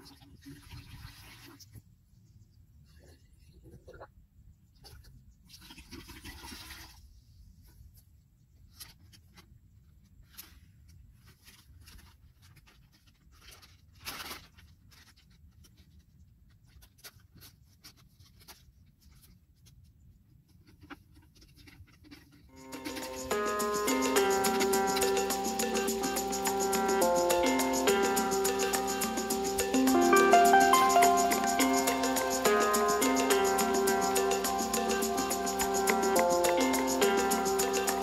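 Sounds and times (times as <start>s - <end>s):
plastic packets rustling: 10.2s - 19.4s.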